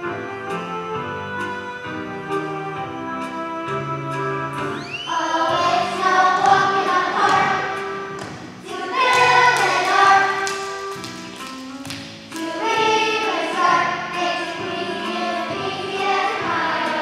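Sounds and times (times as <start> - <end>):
recorded musical accompaniment: 0.0 - 17.0
children's choir singing: 4.7 - 17.0.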